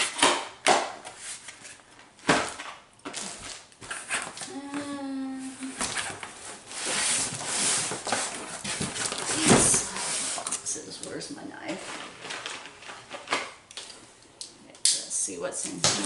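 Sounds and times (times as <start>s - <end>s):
cardboard scraping and rustling: 5.6s - 10.5s.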